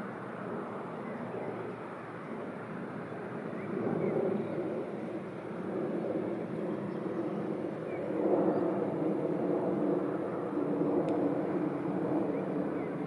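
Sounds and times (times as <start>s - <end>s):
light tick: 11.0s - 11.2s.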